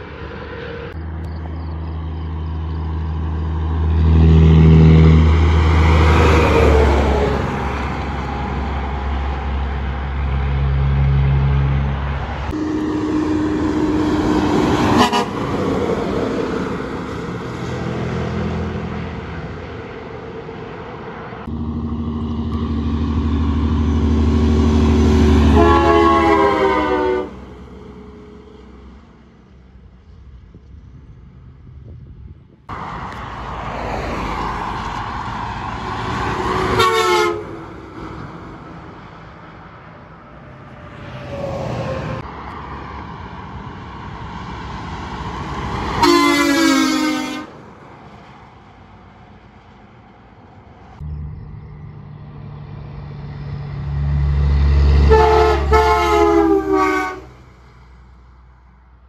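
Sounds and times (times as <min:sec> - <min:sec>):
diesel engine and road noise: 0:00.0 - 0:59.0
truck air horn blasts: 0:12.5 - 0:16.2, 0:24.7 - 0:28.8, 0:36.5 - 0:37.8, 0:45.9 - 0:47.6, 0:55.0 - 0:57.5.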